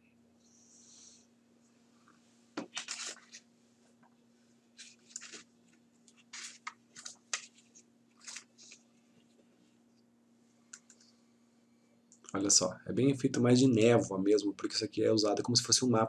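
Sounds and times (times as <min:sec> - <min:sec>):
low electrical hum: 0:00.0 - 0:16.0
crackly scrapes close to microphone: 0:02.7 - 0:03.4.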